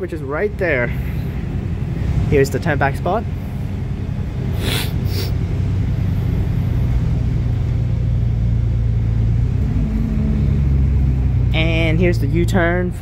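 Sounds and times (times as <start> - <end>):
bus engine hum: 0.0 - 13.0
short hiss: 4.6 - 5.4.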